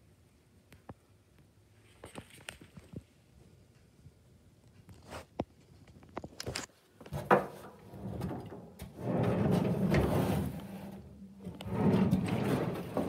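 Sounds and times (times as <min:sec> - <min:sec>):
wooden sliding door rumbling: 0:07.1 - 0:13.0.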